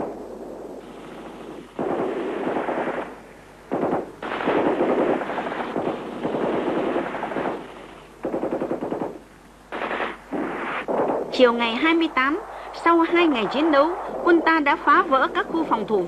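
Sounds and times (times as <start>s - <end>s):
automatic gunfire bursts: 0.0s - 11.3s.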